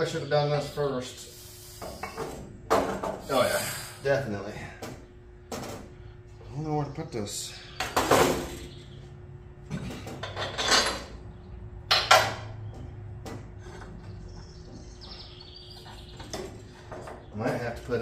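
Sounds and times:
steel parts clanking and scraping: 0:10.2 - 0:11.2.

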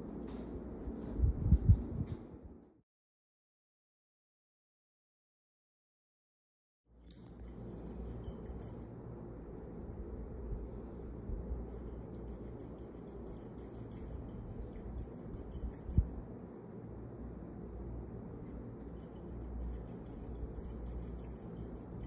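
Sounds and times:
steady low rumble: 0:00.0 - 0:02.8, 0:07.0 - 0:22.0
electronic bird chirps: 0:07.0 - 0:08.9, 0:11.7 - 0:16.2, 0:19.0 - 0:22.0.

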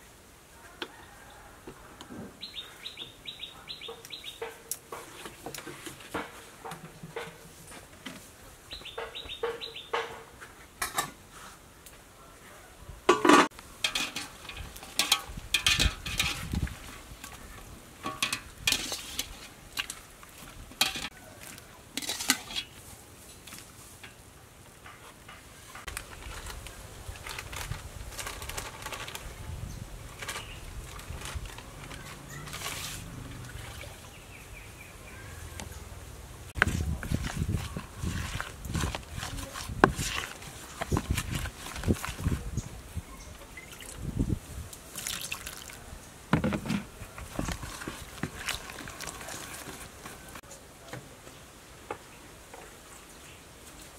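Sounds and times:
bowls and spoon clinking: 0:13.1 - 0:16.6.

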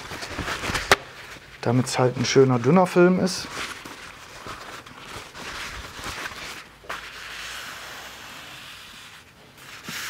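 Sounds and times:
paper towel rustling: 0:00.0 - 0:10.0.

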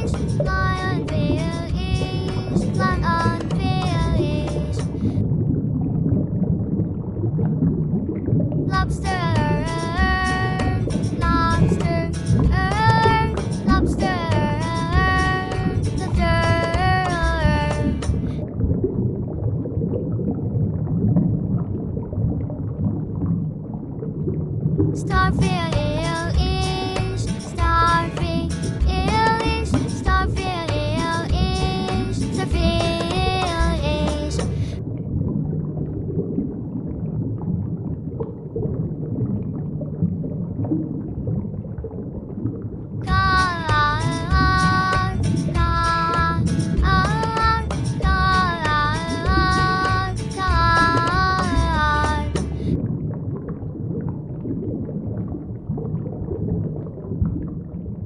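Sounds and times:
children's song: 0:00.0 - 0:05.0, 0:08.7 - 0:18.2, 0:25.0 - 0:34.6, 0:43.1 - 0:52.6
underwater rumbling: 0:00.0 - 0:58.0.

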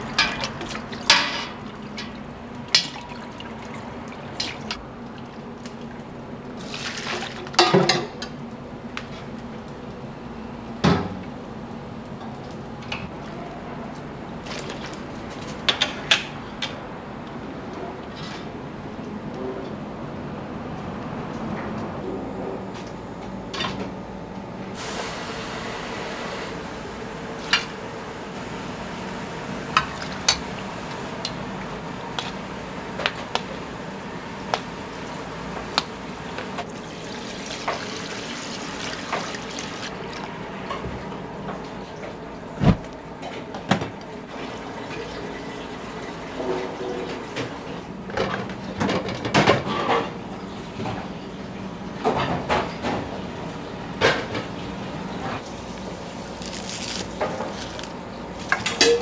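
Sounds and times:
metal pots and utensils clinking: 0:00.0 - 0:03.0, 0:58.4 - 0:59.0
liquid pouring and sloshing: 0:00.0 - 0:07.8, 0:14.4 - 0:15.4, 0:36.6 - 0:40.4
kitchen hum: 0:00.0 - 0:59.0.

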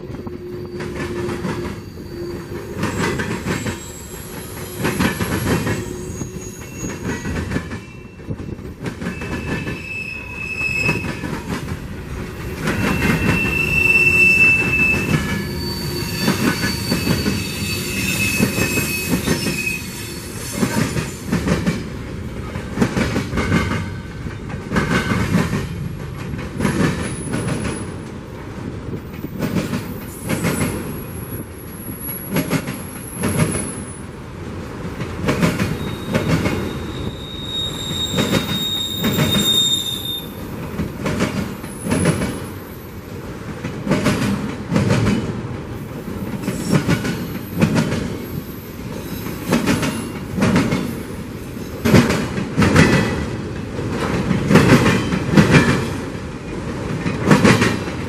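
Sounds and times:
high-pitched wheel squeals: 0:00.1 - 0:08.3, 0:09.1 - 0:11.4, 0:12.7 - 0:21.2, 0:35.7 - 0:40.4
train wheels clattering over rails: 0:00.2 - 0:09.9, 0:10.8 - 0:19.6, 0:20.4 - 0:58.0.

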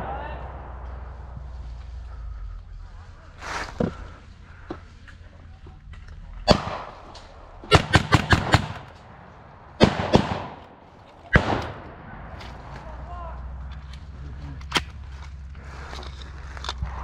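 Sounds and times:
blank gunfire: 0:06.5 - 0:07.0, 0:07.6 - 0:08.9, 0:09.8 - 0:10.6, 0:11.3 - 0:11.9.

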